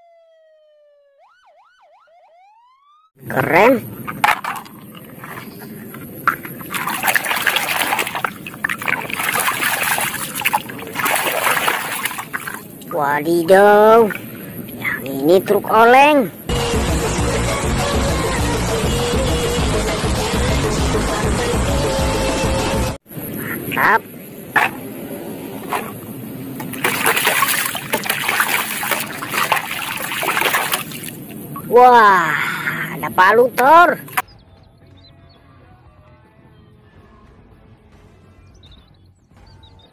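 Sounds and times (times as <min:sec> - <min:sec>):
puddle water splashing: 0:03.3 - 0:15.1, 0:24.6 - 0:24.9, 0:25.5 - 0:32.7, 0:33.7 - 0:34.2.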